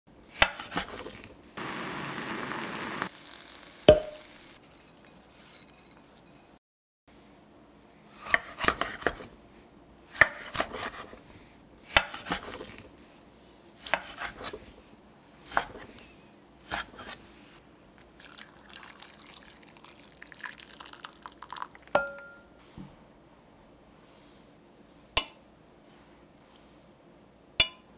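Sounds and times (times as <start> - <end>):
clink on glass: 3.9 - 4.2, 22.0 - 22.6
knife chopping on wooden board: 8.2 - 9.2, 10.2 - 11.1, 11.9 - 12.6, 13.8 - 14.5
water pouring into glass bowl: 18.2 - 22.0.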